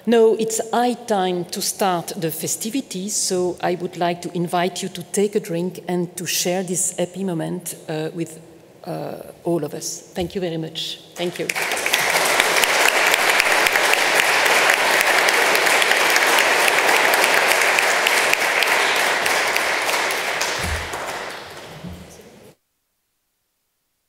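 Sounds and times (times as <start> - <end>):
audience applauding: 11.2 - 22.3.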